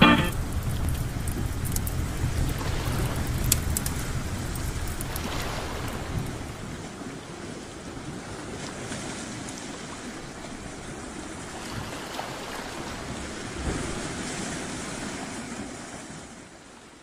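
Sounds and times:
sea waves washing: 2.5 - 6.8.

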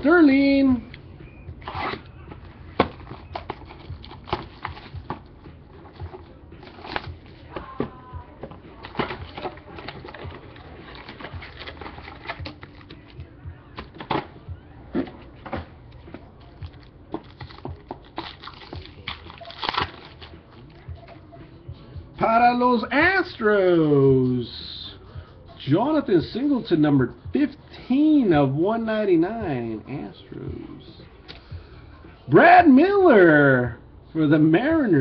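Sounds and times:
card pack wrapper rustling: 2.8 - 5.2, 5.9 - 7.4, 8.8 - 13.2, 16.6 - 20.4.

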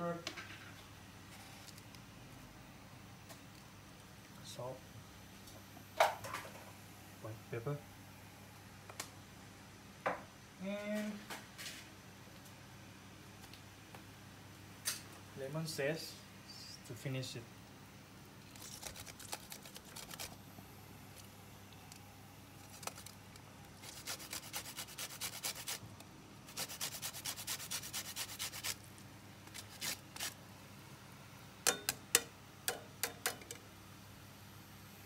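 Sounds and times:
zest grating on metal grater: 23.8 - 25.8, 26.5 - 28.8, 29.5 - 30.4.

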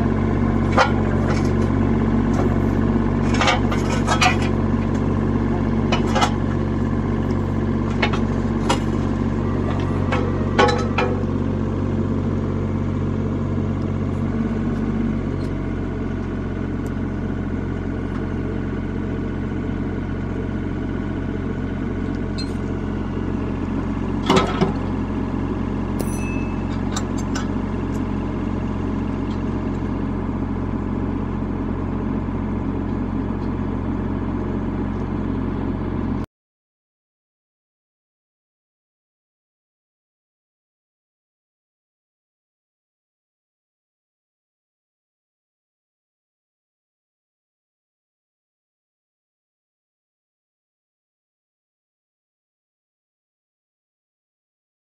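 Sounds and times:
excavator diesel engine running: 0.0 - 36.3
sharp metal clanks: 26.0 - 27.5.

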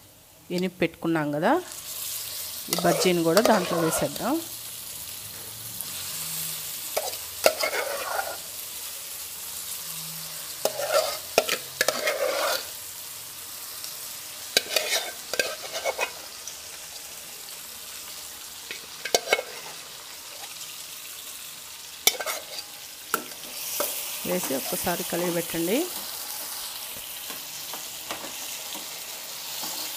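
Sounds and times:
oil sizzling in a frying pan: 0.0 - 29.9
spatula scraping and tapping pan: 2.7 - 4.2, 7.0 - 8.4, 10.6 - 12.7, 14.6 - 16.2, 18.7 - 19.8, 22.0 - 24.8, 27.0 - 29.0.

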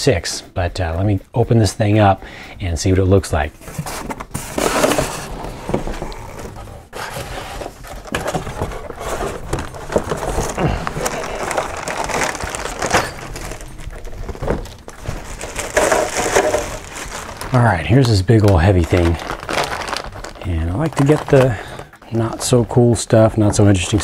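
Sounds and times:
cardboard rustling and scraping: 3.5 - 24.0
plastic bag crinkling: 7.0 - 24.0.

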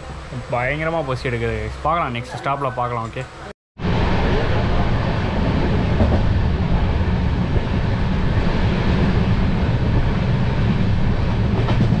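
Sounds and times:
train rumbling on track: 0.0 - 12.0.

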